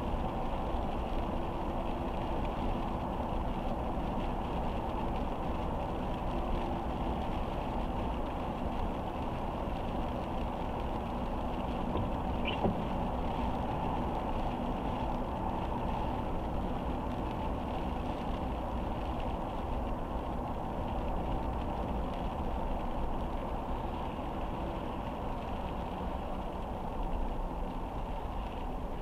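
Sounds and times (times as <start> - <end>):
car road and engine rumble: 0.0 - 29.0
tyres hissing on wet road: 0.0 - 29.0.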